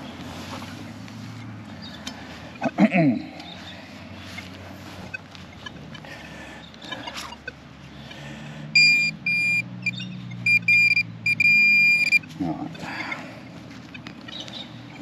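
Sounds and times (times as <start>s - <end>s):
metal detector tone: 8.8s - 12.3s.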